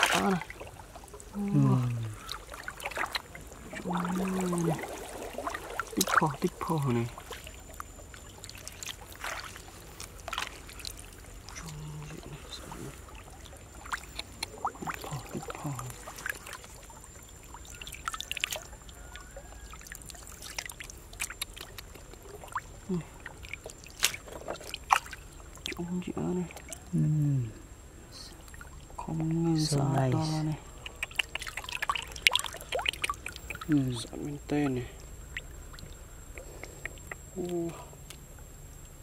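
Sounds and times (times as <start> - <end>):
hands splashing in water: 0.0 - 0.8, 2.1 - 7.8, 8.4 - 12.7, 23.6 - 25.2, 30.8 - 34.0.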